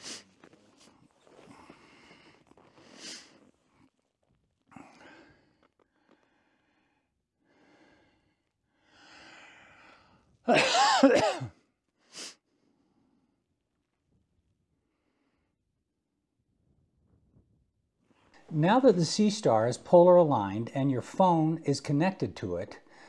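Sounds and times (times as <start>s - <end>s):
person sneezing: 10.5s - 11.5s
faint breathing: 22.8s - 23.0s.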